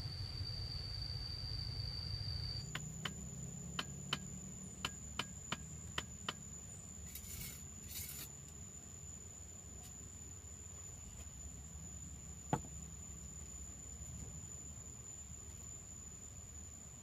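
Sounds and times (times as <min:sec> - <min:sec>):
thin high whine: 0:00.0 - 0:05.4, 0:06.7 - 0:08.4
trowel scraping mortar: 0:07.1 - 0:08.3.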